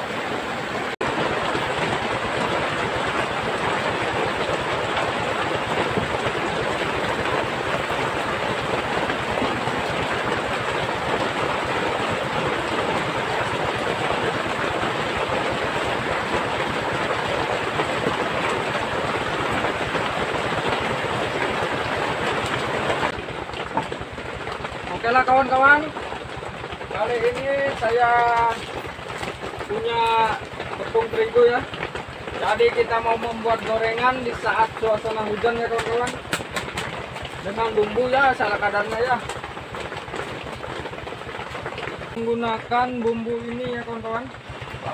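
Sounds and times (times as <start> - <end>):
heavy rain pouring: 0.0 - 44.9.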